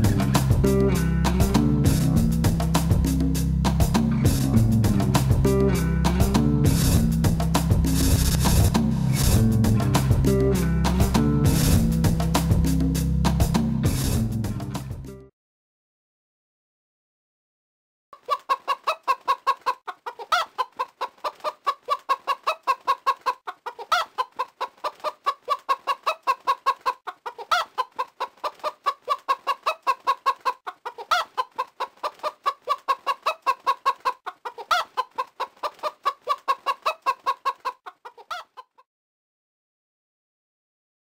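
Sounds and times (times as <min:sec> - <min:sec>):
hens clucking: 0:18.2 - 0:38.8.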